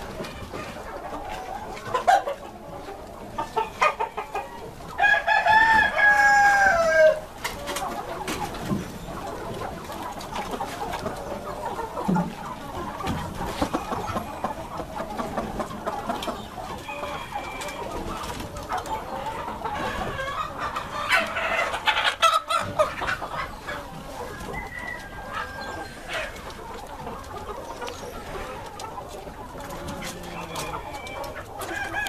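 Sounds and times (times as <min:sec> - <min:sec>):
chickens clucking: 0:00.0 - 0:32.0
rooster crowing: 0:05.0 - 0:07.2, 0:16.8 - 0:17.9, 0:24.4 - 0:26.3, 0:30.2 - 0:32.0.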